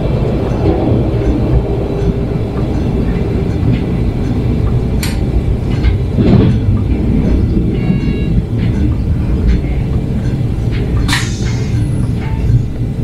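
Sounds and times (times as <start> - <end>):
train engine and wheels rumbling: 0.0 - 13.0
sharp click: 11.0 - 11.8.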